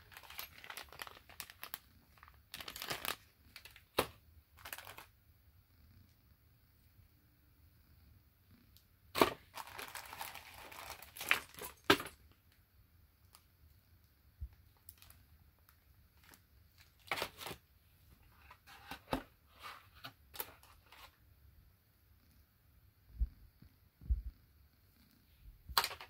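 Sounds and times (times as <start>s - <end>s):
plastic bag crinkling: 0.0s - 5.1s, 9.2s - 12.2s.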